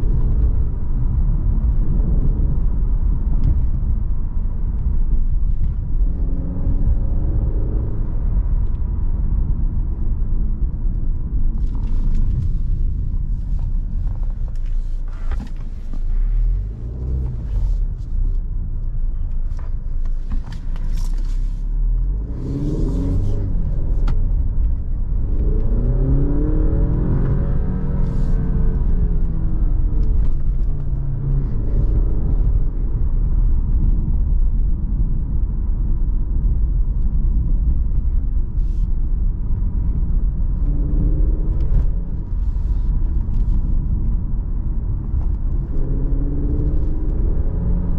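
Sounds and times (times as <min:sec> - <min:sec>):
car engine accelerating: 0:00.0 - 0:47.9
low road rumble: 0:00.0 - 0:47.9.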